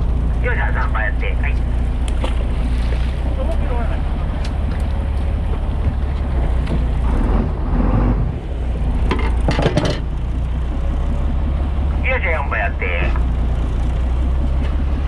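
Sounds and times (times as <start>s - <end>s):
boat engine running: 0.0s - 15.0s
water rushing along hull: 0.0s - 15.0s
wind: 0.0s - 15.0s
sharp knocks and clatters: 9.0s - 10.4s.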